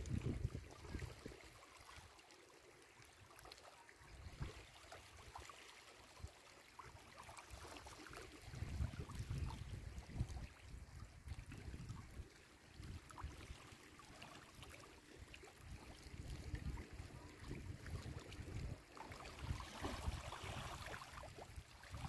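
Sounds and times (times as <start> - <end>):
wind rumble on microphone: 0.0 - 1.3, 4.1 - 4.6, 8.3 - 13.6, 15.6 - 22.0
water lapping among stones: 11.5 - 22.0.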